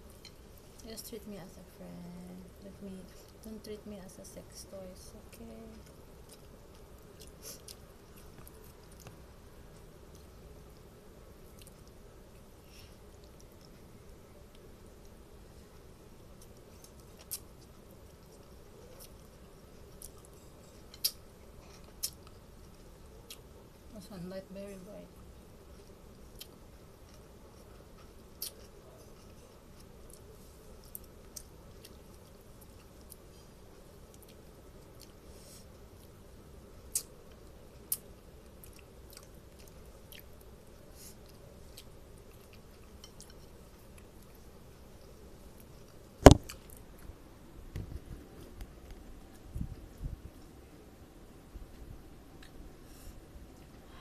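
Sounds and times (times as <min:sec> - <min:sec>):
faint steady hum: 0:00.0 - 0:54.0
person chewing noodles: 0:05.8 - 0:09.2, 0:09.8 - 0:13.9, 0:16.3 - 0:23.5, 0:25.7 - 0:36.1, 0:36.9 - 0:47.1.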